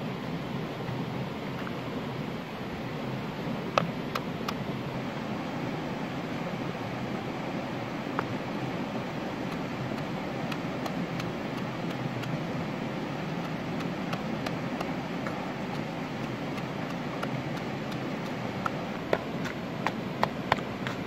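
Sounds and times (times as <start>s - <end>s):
steady rushing noise: 0.0s - 21.0s
pestle tapping in a bowl: 9.5s - 12.4s, 13.4s - 21.0s.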